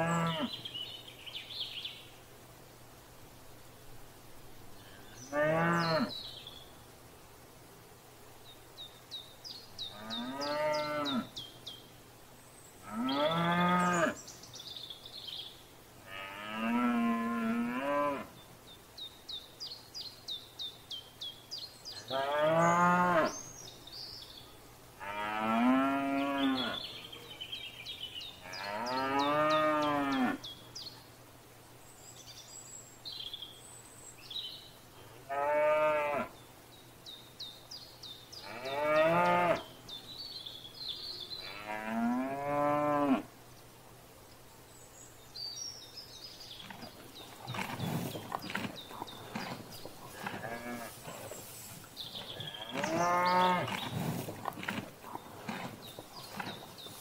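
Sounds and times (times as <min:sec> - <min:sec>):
cows mooing: 0:46.7 - 0:51.4, 0:52.2 - 0:56.6.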